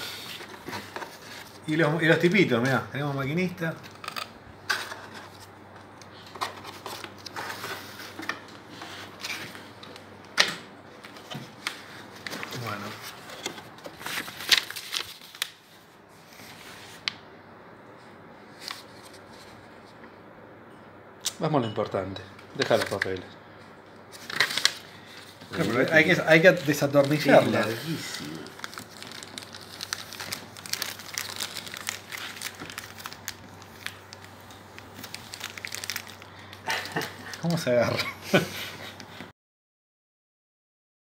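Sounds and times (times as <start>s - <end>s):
paper rustling: 0.0s - 2.0s, 6.2s - 9.7s, 11.0s - 17.2s, 18.5s - 20.0s, 22.6s - 23.2s, 24.1s - 36.2s
plastic film crinkling: 11.0s - 15.9s, 24.1s - 37.9s.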